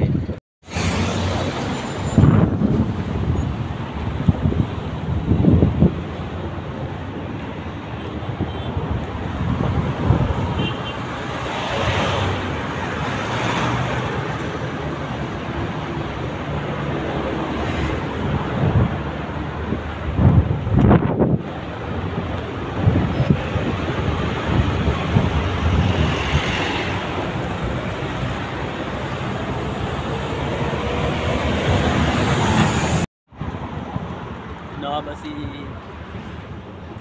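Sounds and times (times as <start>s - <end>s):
road traffic passing: 0.0s - 37.0s
wind buffeting microphone: 2.0s - 10.6s, 18.0s - 34.2s.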